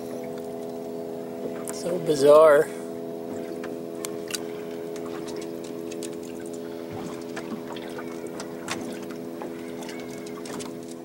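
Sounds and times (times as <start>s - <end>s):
boat engine idling: 0.0s - 11.0s
water lapping against hull: 0.0s - 11.0s
small water splashes: 3.2s - 11.0s.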